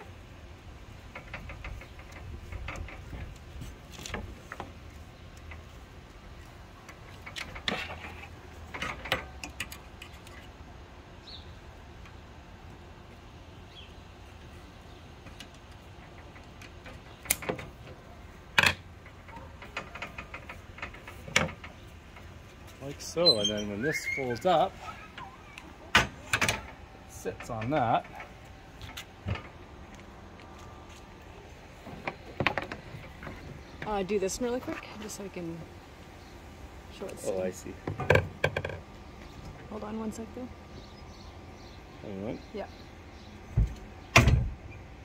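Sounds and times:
clicks and knocks against metal: 0:01.0 - 0:05.8, 0:06.8 - 0:10.6, 0:15.2 - 0:22.8, 0:25.9 - 0:30.6, 0:31.8 - 0:34.0, 0:37.8 - 0:39.6.

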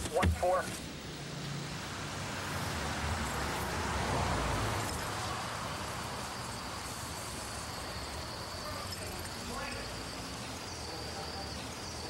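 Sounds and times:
crickets trilling: 0:00.1 - 0:12.0
car driving past: 0:01.2 - 0:08.8.

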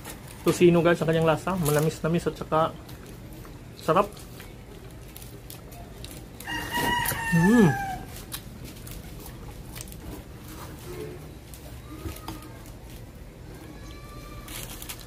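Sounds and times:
rooster crowing: 0:06.4 - 0:08.2.

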